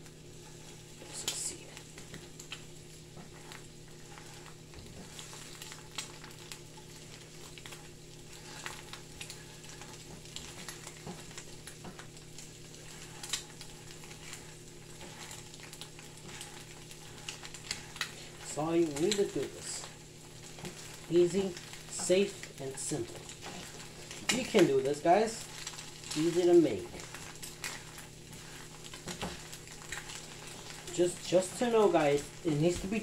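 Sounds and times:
eggs sizzling in a pan: 0.0s - 33.0s
spatula stirring: 0.0s - 33.0s.

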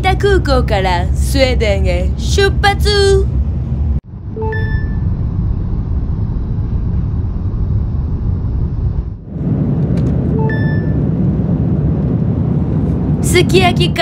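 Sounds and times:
airliner cabin rumble and hiss: 5.1s - 14.0s.

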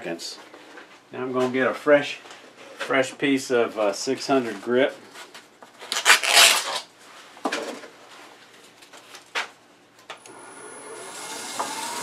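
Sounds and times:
wood lathe whine: 10.3s - 12.0s.

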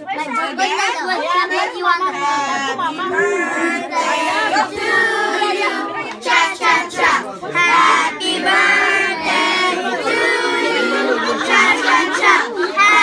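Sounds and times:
talking: 1.5s - 13.0s
children singing together: 3.0s - 13.0s.

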